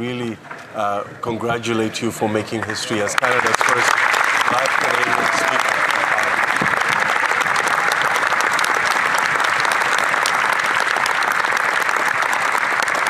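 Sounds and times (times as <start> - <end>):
crowd applauding: 2.4 - 13.0.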